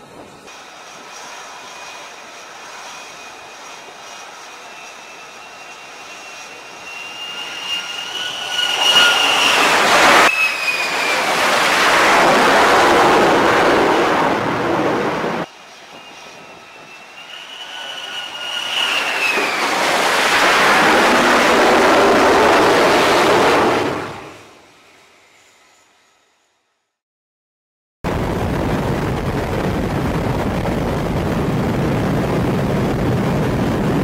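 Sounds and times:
loud rush of jet noise: 0.0 - 25.9, 28.1 - 34.0
jet engine whining: 0.0 - 26.4, 28.1 - 34.0.

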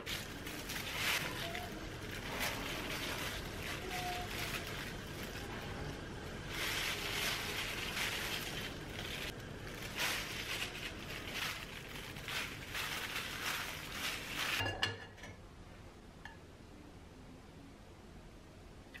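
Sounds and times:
breadcrumbs crunching: 0.0 - 14.6
plastic glove rustling: 0.0 - 14.8.

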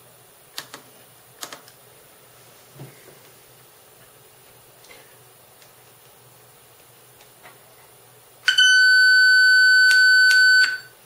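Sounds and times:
low background noise: 0.0 - 11.0
loud steady test tone: 8.4 - 11.0.

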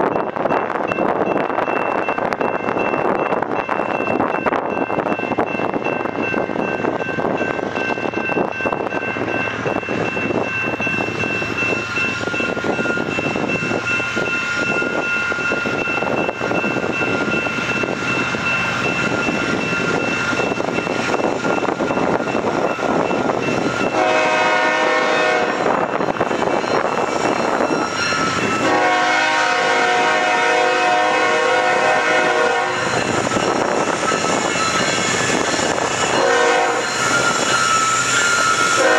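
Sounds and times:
diesel locomotives rumbling: 0.0 - 38.9
locomotive air horn blasts: 23.9 - 25.7, 28.6 - 32.9, 36.2 - 36.8.

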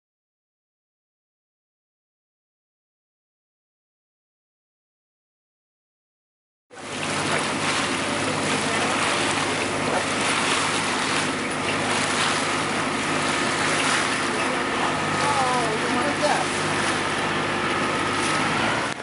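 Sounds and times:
steady low hum: 6.8 - 19.0
wind and water rushing: 6.8 - 19.0.

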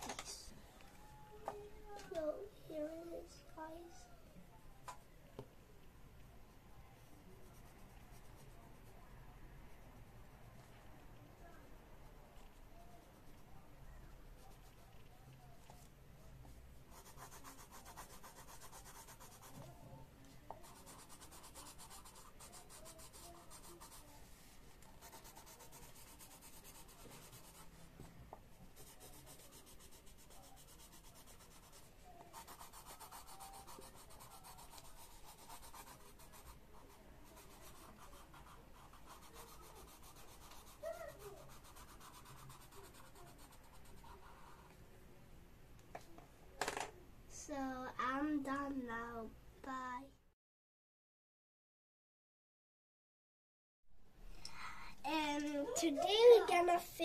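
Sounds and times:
pencil scratching on paper: 7.4 - 9.0, 16.8 - 19.8, 20.5 - 28.0, 28.7 - 44.8.

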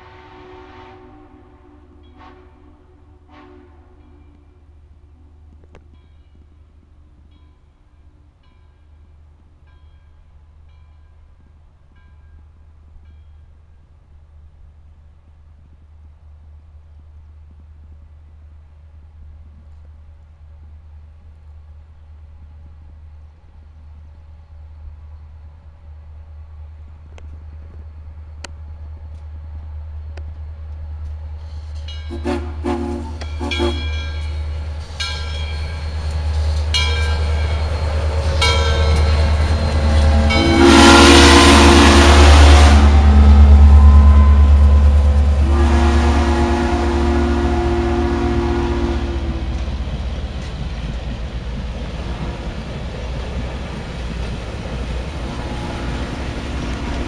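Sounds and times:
steam train rumbling past: 0.0 - 57.0
rush of steam: 31.3 - 57.0
locomotive chime whistle: 31.9 - 49.3.

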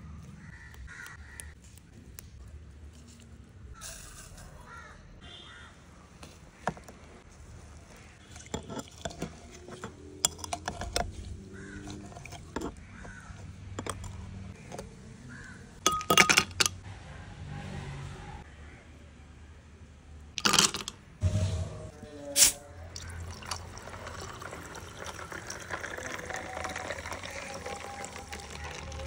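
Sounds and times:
ice cubes clinking in glass: 15.8 - 16.7, 20.4 - 20.9, 23.0 - 29.0.

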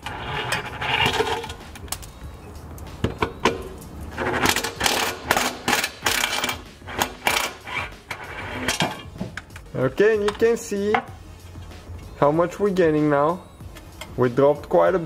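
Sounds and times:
impact wrench running: 4.2 - 9.0.

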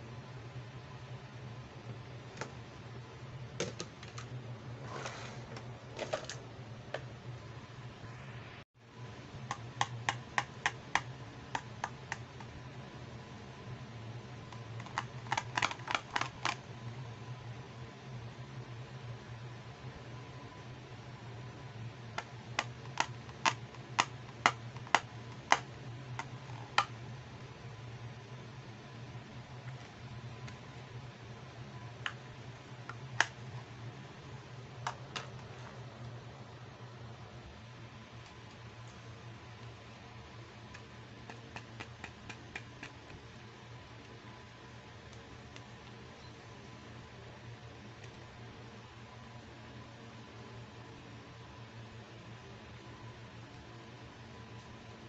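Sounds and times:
fingertips tapping on plastic: 9.5 - 12.6, 14.8 - 16.6, 22.2 - 26.9, 40.7 - 43.2
plastic toys clicking and clacking: 14.8 - 16.6.

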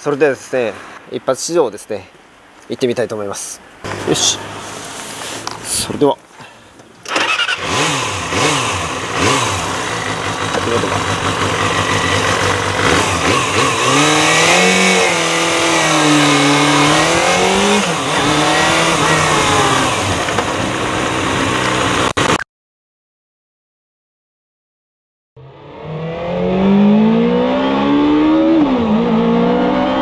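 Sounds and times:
motorcycle riding off: 3.9 - 5.5, 7.1 - 22.2, 25.4 - 30.0
motorcycle engine revving: 7.1 - 22.4, 25.4 - 30.0.

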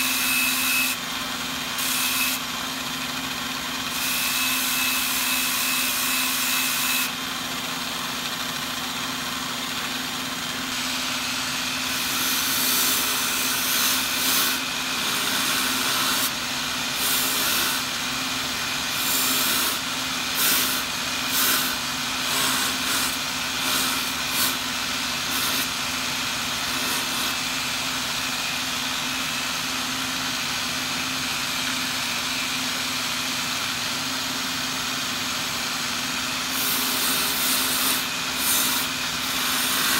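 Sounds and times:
angle grinder motor hum: 0.0 - 39.9
wood rasping on sanding disc: 10.7 - 18.0, 18.8 - 27.6, 36.5 - 39.9.

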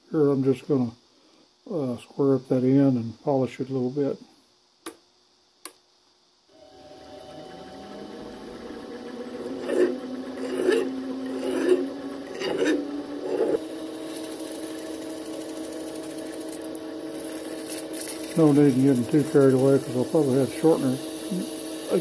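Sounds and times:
lathe motor running: 6.6 - 22.0
file stroking spinning metal: 6.8 - 22.0
abrasive paper hissing: 9.5 - 22.0.

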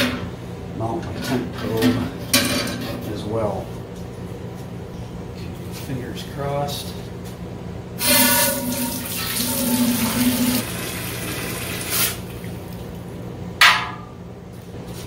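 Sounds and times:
water pouring into kettle: 8.1 - 12.7.

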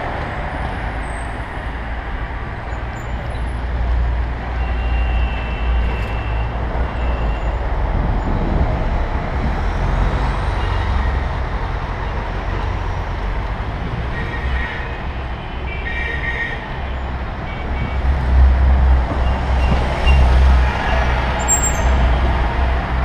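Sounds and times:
city traffic: 0.0 - 23.0
wind buffeting microphone: 7.6 - 10.2.

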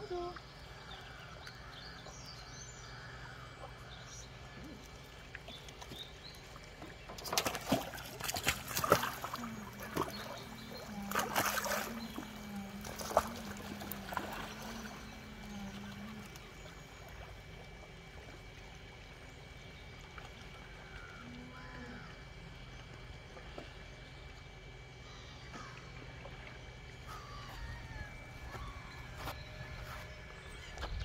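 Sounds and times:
low steady hum: 0.0 - 31.0
water lapping: 0.0 - 31.0
penguins splashing into water: 7.2 - 10.2.

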